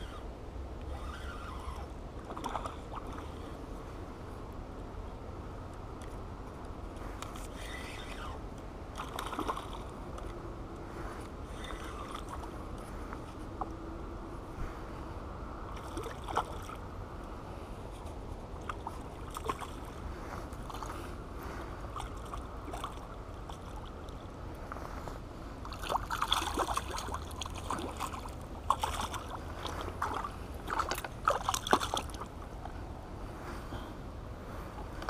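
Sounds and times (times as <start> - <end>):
fish splashing in shallow water: 1.0 - 3.6, 8.9 - 10.3, 15.6 - 16.9, 18.5 - 24.3, 25.6 - 32.7.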